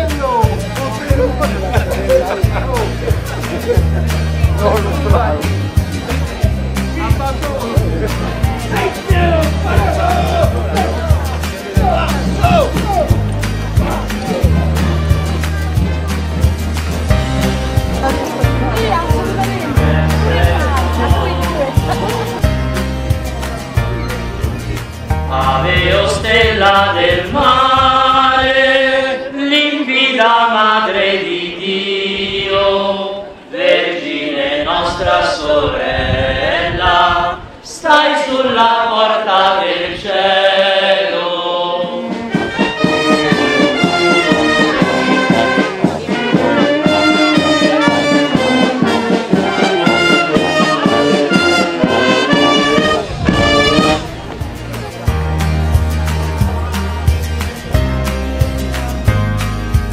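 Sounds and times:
brass band playing: 0.0 - 27.5, 41.2 - 56.7.

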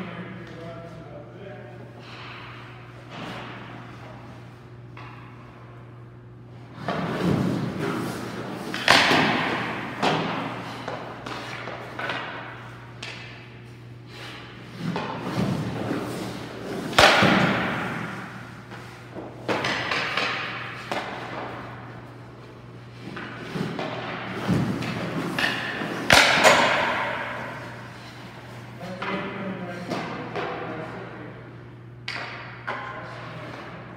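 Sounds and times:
skates scraping on ice: 6.8 - 12.2, 14.1 - 21.7
puck thuds: 6.8 - 13.4, 14.1 - 21.9, 23.0 - 28.0.

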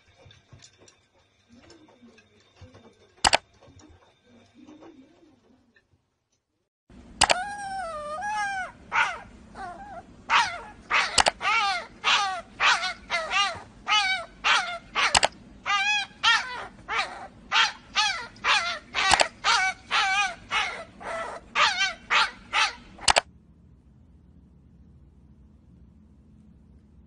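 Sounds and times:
animal crying out: 7.2 - 23.2.

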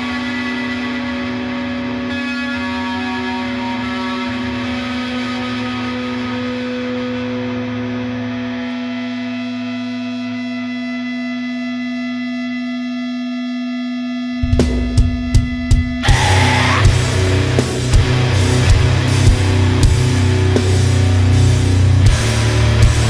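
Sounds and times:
ringing guitar chord with effects: 0.0 - 23.0
heavy metal band hits: 14.4 - 23.0.

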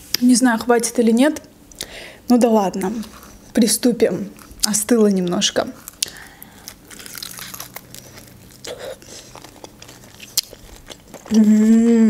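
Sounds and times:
close chewing with crunches: 5.6 - 11.7
biting into crisp dumpling: 5.8 - 11.6
person humming mmm: 11.2 - 12.0.

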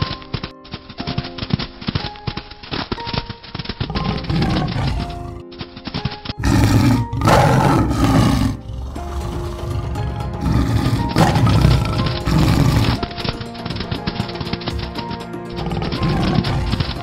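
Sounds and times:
background music: 0.0 - 17.0
tiger roaring: 3.8 - 5.5, 6.4 - 13.1, 15.5 - 17.0.

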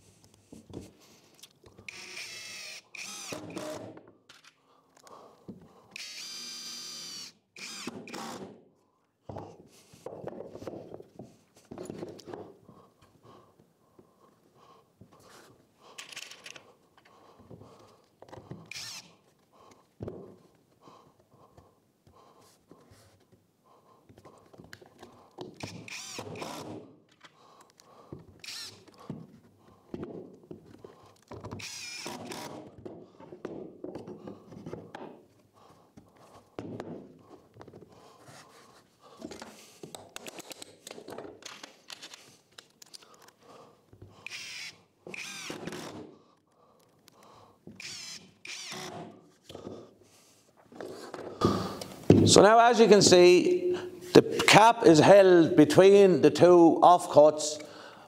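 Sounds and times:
cordless drill driving screws: 1.8 - 4.5, 5.9 - 8.5, 18.7 - 19.2, 25.6 - 26.9, 28.4 - 29.0, 31.2 - 32.8, 44.2 - 46.1, 47.7 - 49.2
knocks and scrapes of wooden pieces: 9.3 - 13.2, 32.2 - 43.4, 48.8 - 52.4.

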